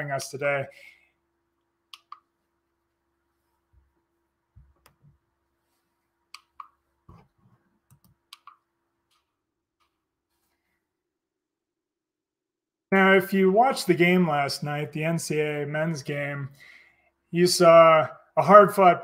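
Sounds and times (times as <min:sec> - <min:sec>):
computer clicks: 0:01.9 - 0:02.3, 0:06.4 - 0:06.8, 0:07.9 - 0:09.2.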